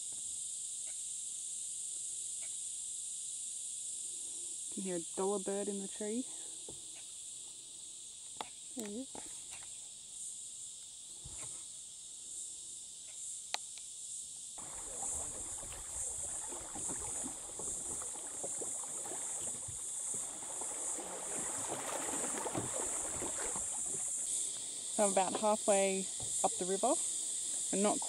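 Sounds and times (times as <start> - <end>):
high insect chorus: 0.0 - 28.0
paddle strokes: 14.6 - 28.0
water splashing along hull: 14.6 - 28.0.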